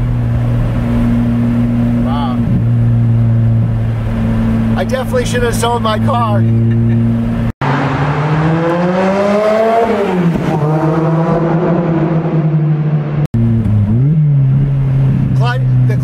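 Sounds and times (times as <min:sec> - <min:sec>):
car engine accelerating: 0:00.0 - 0:16.0
engine running at lower revs: 0:06.3 - 0:16.0.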